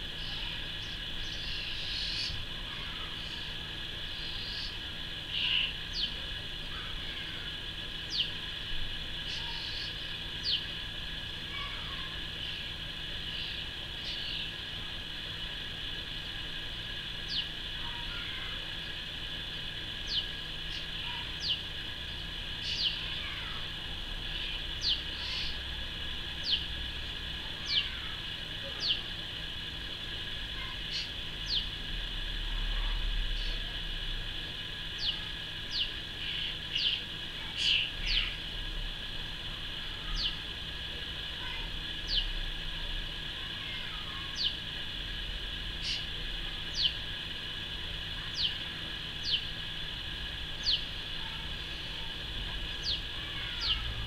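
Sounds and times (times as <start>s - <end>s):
birds calling: 0.0s - 14.6s, 17.2s - 26.9s, 27.5s - 29.6s, 30.2s - 31.8s, 34.8s - 38.5s, 40.0s - 40.5s, 43.6s - 44.7s, 45.8s - 47.2s, 47.9s - 54.0s
steady high-pitched hiss: 0.0s - 54.0s.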